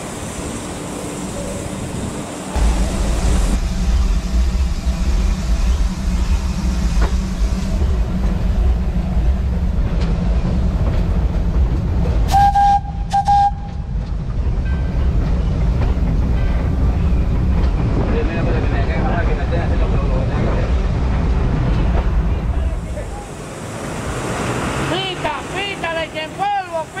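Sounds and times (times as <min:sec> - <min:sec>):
steam locomotive rumble: 0:00.0 - 0:27.0
steam whistle blasts: 0:12.3 - 0:13.8.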